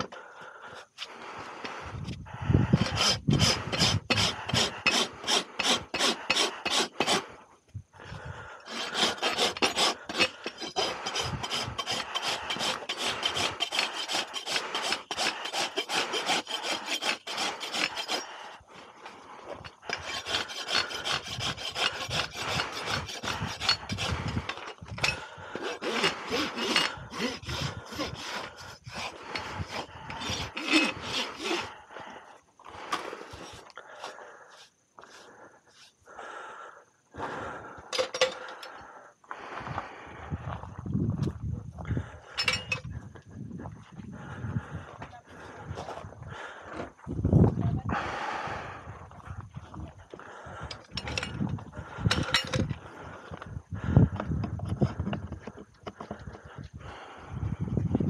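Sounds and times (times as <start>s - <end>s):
rasp scraping hoof: 2.6s - 7.4s, 8.6s - 18.6s, 19.5s - 31.8s, 32.8s - 36.0s, 42.3s - 42.9s, 50.6s - 56.6s.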